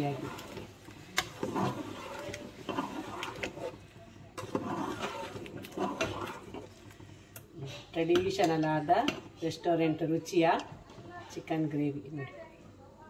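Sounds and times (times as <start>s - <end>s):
ladle scraping pot: 0.0s - 9.6s.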